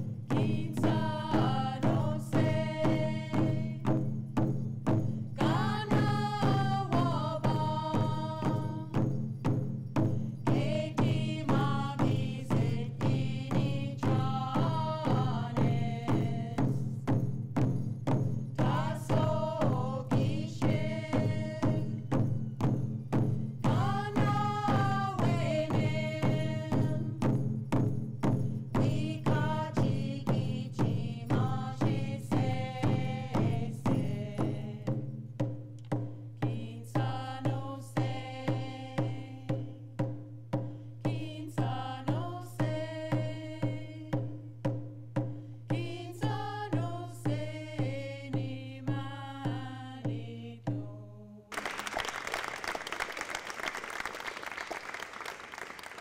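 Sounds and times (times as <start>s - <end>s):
frame drums beating: 0.0s - 48.0s, 51.5s - 56.0s
women singing a chant: 0.3s - 4.0s, 5.4s - 9.0s, 10.5s - 16.8s, 18.6s - 22.0s, 23.6s - 27.3s, 28.8s - 35.0s, 36.4s - 39.8s, 41.0s - 44.4s, 45.7s - 51.5s
audience applause: 51.5s - 56.0s.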